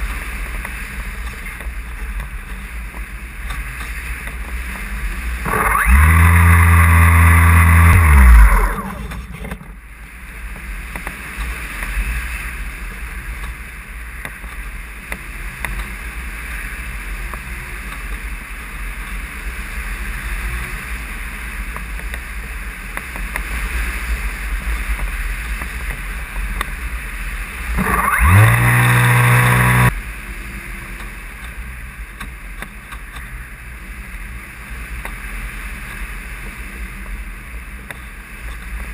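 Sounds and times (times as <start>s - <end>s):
model plane motor humming: 5.4s - 9.6s, 27.8s - 29.9s.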